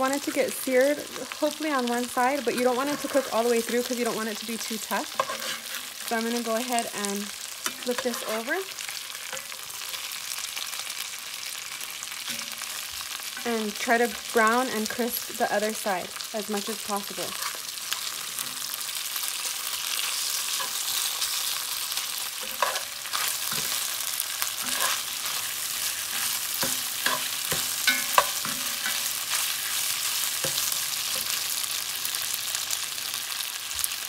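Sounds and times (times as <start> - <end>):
meat sizzling in hot oil: 0.0 - 34.0
spatula scraping pan: 2.4 - 10.6, 16.9 - 31.7.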